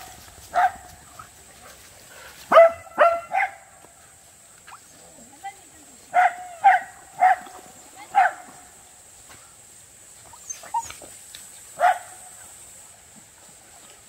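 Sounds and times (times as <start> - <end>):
dog barking in high yips: 2.5 - 3.6.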